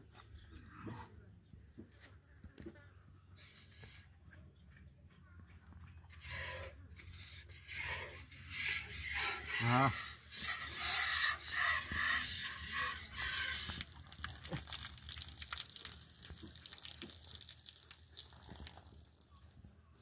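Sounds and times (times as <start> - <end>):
milk squirting into a jug: 9.9 - 19.6.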